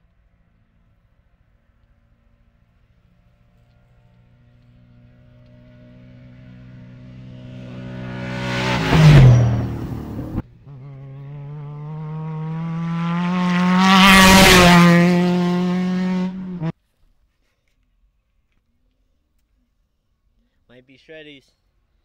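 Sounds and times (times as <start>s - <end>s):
race vehicles passing at full throttle: 3.7s - 16.7s.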